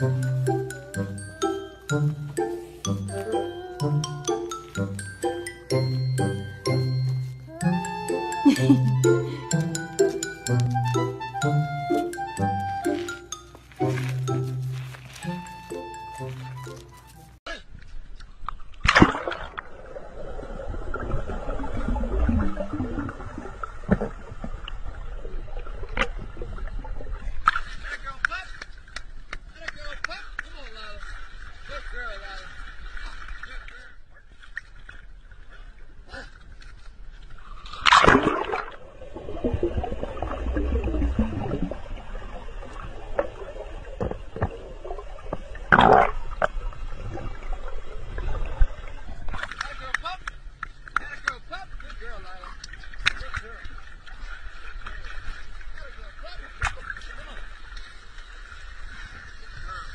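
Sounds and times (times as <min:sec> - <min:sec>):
underwater gurgle: 0:18.5 - 0:27.9, 0:37.2 - 0:49.8
dog splashing into water: 0:18.8 - 0:19.7, 0:37.8 - 0:38.8.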